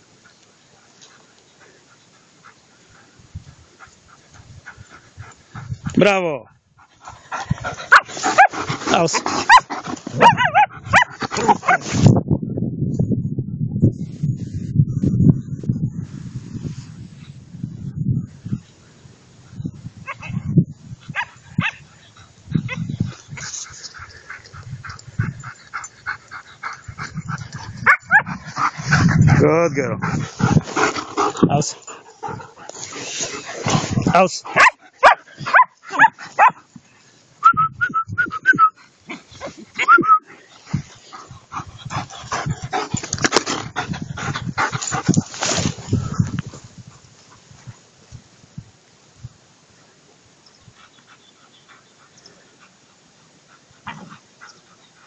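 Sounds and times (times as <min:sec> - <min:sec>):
dogs barking and yipping: 0:06.8 - 0:12.0, 0:21.1 - 0:29.3, 0:30.0 - 0:36.7
dull low thumps: 0:26.8 - 0:32.6.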